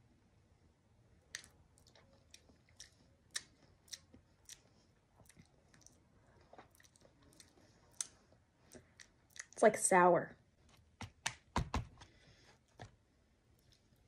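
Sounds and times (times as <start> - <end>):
mouth clicks and lip smacks: 1.3 - 9.6.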